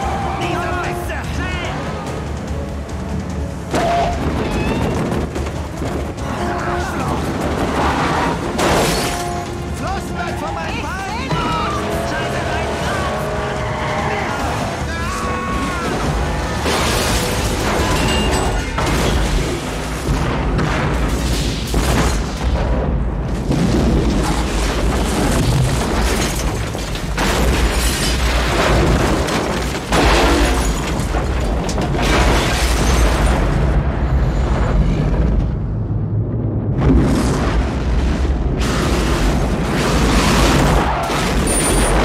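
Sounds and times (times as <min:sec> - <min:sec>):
debris crashing: 0:00.0 - 0:35.6, 0:36.8 - 0:42.0
dramatic film score: 0:00.0 - 0:42.0
roar of fire: 0:33.3 - 0:42.0
explosion booms: 0:36.4 - 0:42.0.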